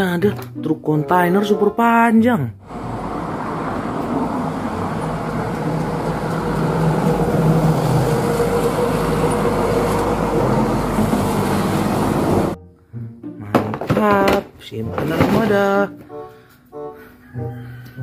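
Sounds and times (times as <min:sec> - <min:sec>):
road traffic noise: 0:02.6 - 0:12.6
truck engine drone: 0:02.6 - 0:12.6.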